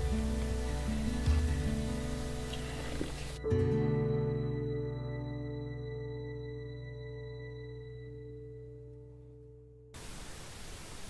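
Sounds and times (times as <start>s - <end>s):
faint background hiss: 0.0s - 3.4s, 10.0s - 11.0s
soft instrumental music: 0.0s - 9.9s.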